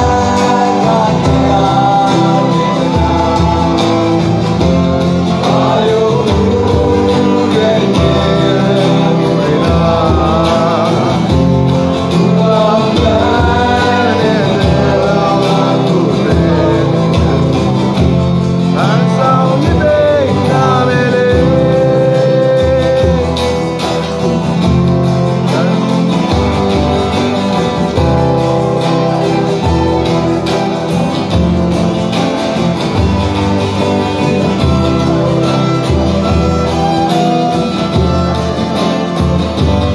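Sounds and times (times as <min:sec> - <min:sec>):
man singing: 0:00.0 - 0:39.9
strummed acoustic guitars: 0:00.0 - 0:39.9.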